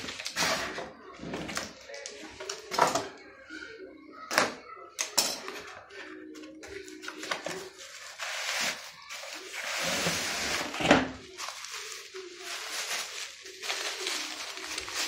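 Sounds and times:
cardboard and plastic rustling: 0.0 - 3.0, 6.6 - 15.0.

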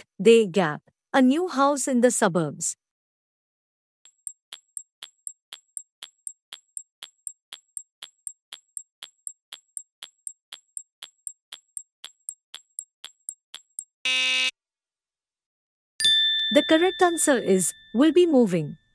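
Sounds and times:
clock ticks: 4.1 - 13.9.

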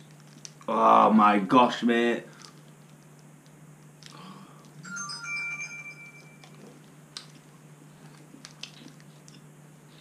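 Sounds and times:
steady low hum: 0.0 - 10.0
faint chewing: 6.4 - 10.0.

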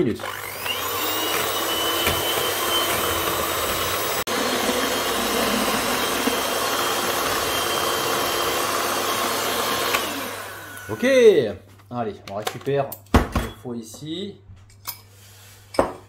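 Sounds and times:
electric hand mixer whisking: 0.0 - 11.4.

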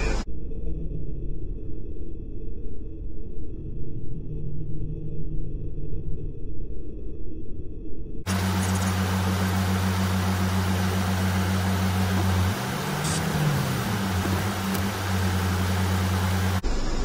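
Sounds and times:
heavy rain on a car: 8.3 - 16.6
idling vehicle hum: 8.3 - 17.0.

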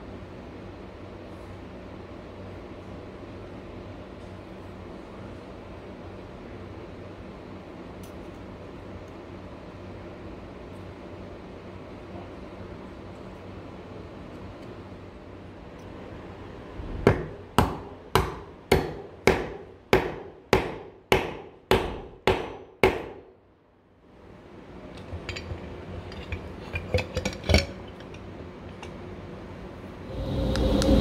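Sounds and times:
hammer striking chisel: 17.1 - 23.2.

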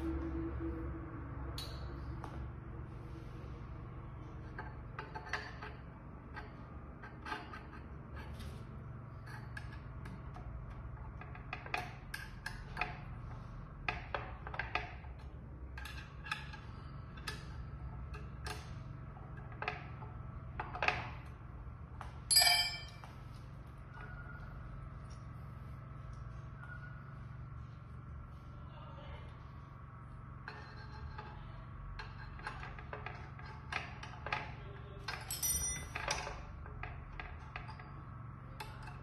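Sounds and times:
ringing metal clink: 22.3 - 23.1, 35.1 - 36.3
metal parts clicking: 35.1 - 36.4.

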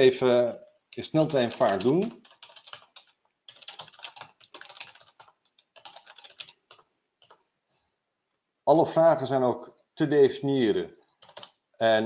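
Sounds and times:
typing on computer keyboard: 0.9 - 7.4, 11.1 - 11.6.

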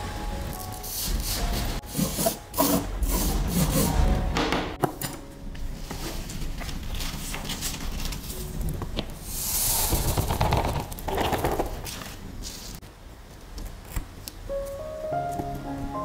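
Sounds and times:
paper crinkling: 5.6 - 9.2, 9.9 - 12.8
sand hissing as it pours: 9.2 - 10.3.

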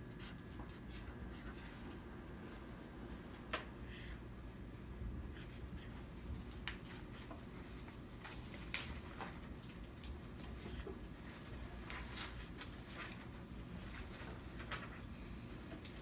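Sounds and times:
low room hum: 0.0 - 16.0
marker scratching on paper: 5.3 - 6.0.

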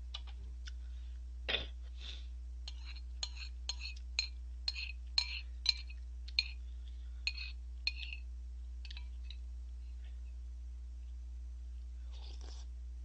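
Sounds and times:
steady low hum: 0.0 - 13.0
metal spoon clinking on ceramic bowl: 2.7 - 6.6, 7.3 - 8.2, 8.8 - 9.4.

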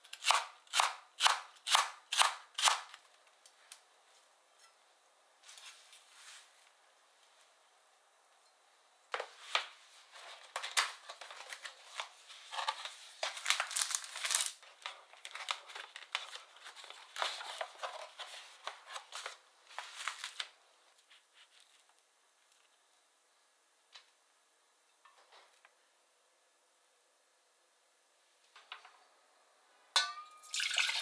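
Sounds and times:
plastic film crinkling and tearing: 12.8 - 17.8, 18.6 - 20.5.

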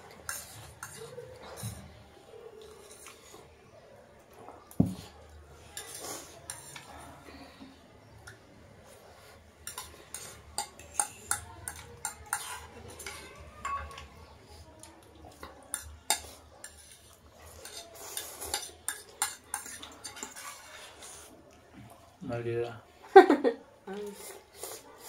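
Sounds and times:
forks clinking on ceramic plates: 0.2 - 1.8, 9.6 - 14.2, 15.3 - 20.6.

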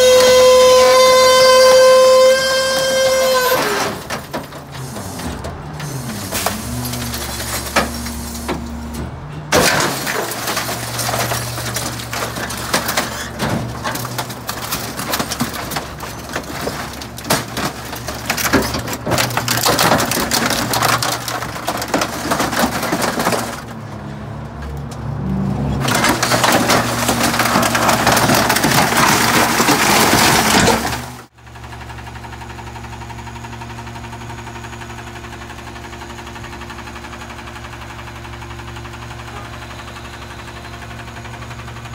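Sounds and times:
truck engine idling: 0.0 - 24.8, 25.8 - 41.9
plastic and wood cracking: 9.5 - 23.8, 25.8 - 31.3.

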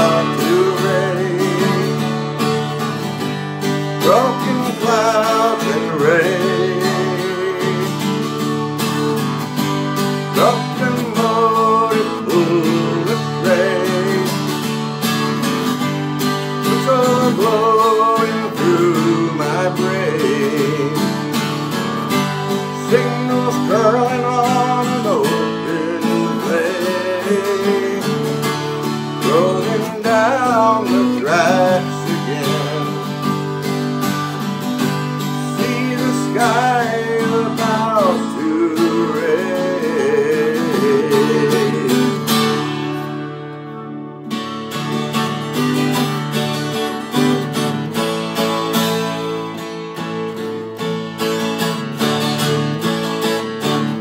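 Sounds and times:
man singing: 0.0 - 3.1, 3.8 - 8.7, 10.2 - 14.9, 16.4 - 42.7
acoustic guitar strummed: 0.0 - 54.0.

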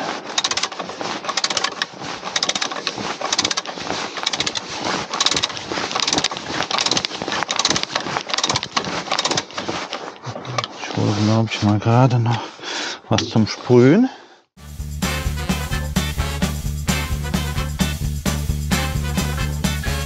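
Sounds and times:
hand ratchet clicking: 0.0 - 10.0.

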